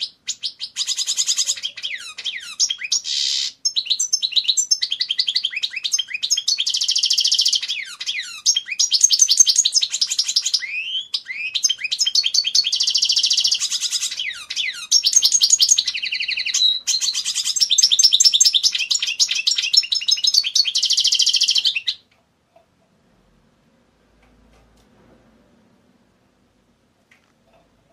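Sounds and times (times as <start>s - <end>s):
goldfinch twittering song: 0.0s - 22.0s.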